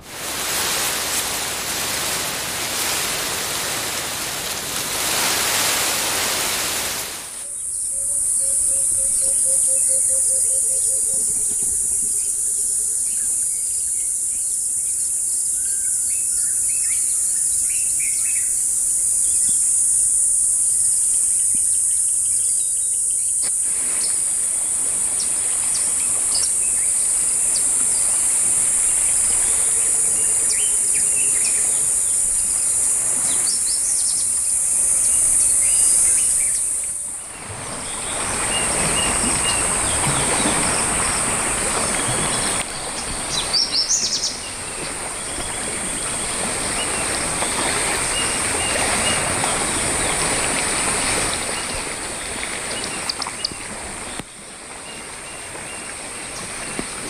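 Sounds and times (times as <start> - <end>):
rushing stream: 0.0 - 14.3, 23.5 - 57.0
high-pitched insect drone: 7.4 - 16.0.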